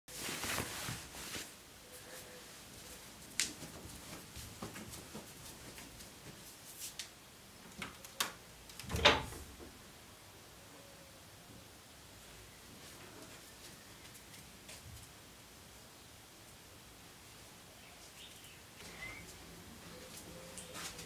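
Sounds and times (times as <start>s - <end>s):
rustling: 0.1s - 9.7s, 18.0s - 21.0s.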